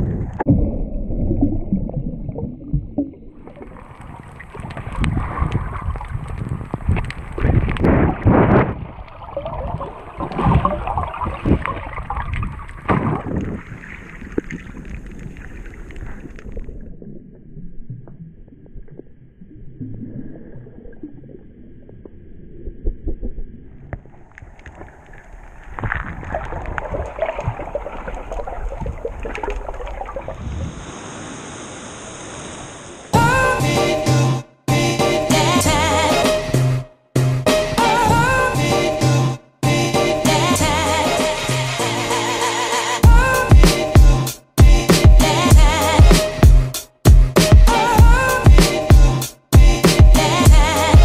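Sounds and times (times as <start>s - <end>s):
underwater bubbles: 0.0s - 33.4s
water splashing and gurgling: 0.0s - 33.6s.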